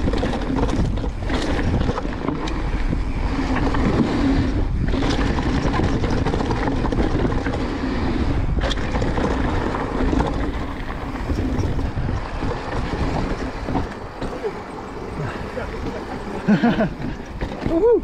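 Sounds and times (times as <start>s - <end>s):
bike tyres and frame rattling: 0.0s - 18.0s
wind rushing over microphone: 0.0s - 18.0s.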